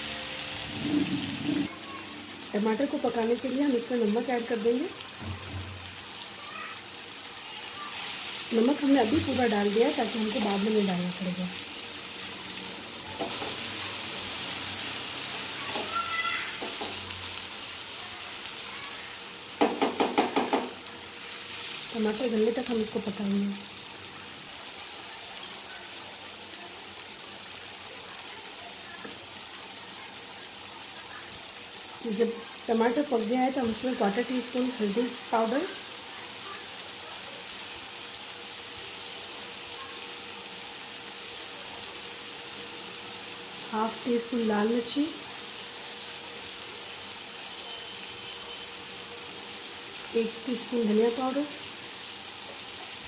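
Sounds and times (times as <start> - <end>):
vegetables sizzling in hot oil: 0.0 - 53.0
wooden spatula scraping pan: 0.6 - 1.7.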